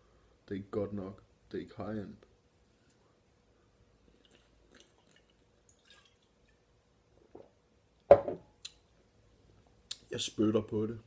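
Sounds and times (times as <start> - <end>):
sipping and swallowing: 4.0 - 6.3.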